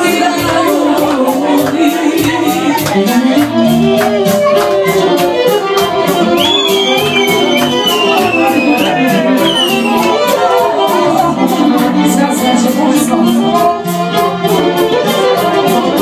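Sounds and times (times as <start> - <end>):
folk music with accordion: 0.0 - 16.0
high ticking beat: 0.2 - 16.0.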